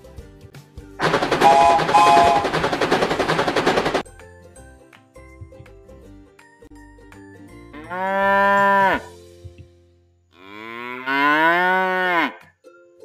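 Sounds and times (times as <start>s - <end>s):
cow mooing: 7.8s - 9.2s, 10.4s - 12.5s.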